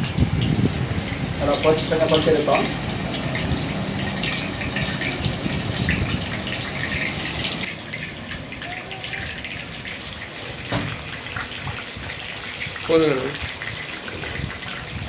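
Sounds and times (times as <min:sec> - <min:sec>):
chicken deep-frying in oil: 0:00.0 - 0:15.0.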